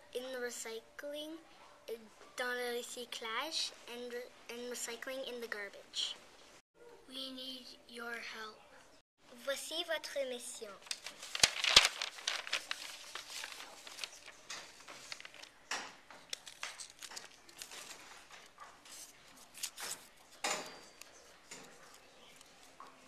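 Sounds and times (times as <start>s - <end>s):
paper and plastic crinkling: 10.6s - 23.0s.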